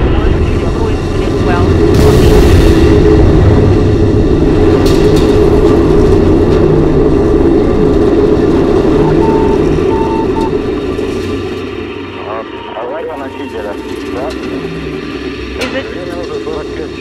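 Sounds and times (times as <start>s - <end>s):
rocket engine roar: 0.0s - 17.0s
short high beeps: 9.0s - 10.5s.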